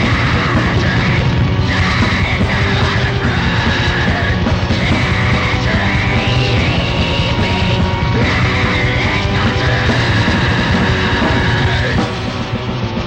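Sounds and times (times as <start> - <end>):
distorted guitar and drums: 0.0 - 13.0
harsh screamed vocal: 0.0 - 13.0.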